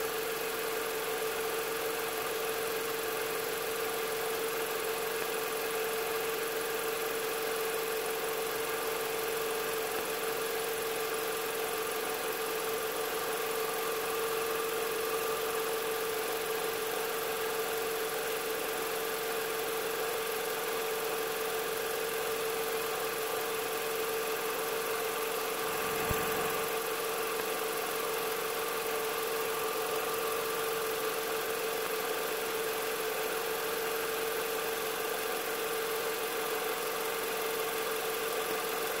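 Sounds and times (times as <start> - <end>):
steady mechanical hum: 25.0 - 27.2.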